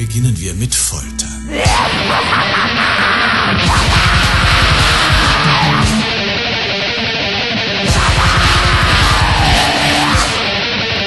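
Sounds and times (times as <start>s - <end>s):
distorted electric guitars: 1.1s - 11.0s
rapid dense drumming: 3.6s - 6.1s, 7.9s - 10.4s.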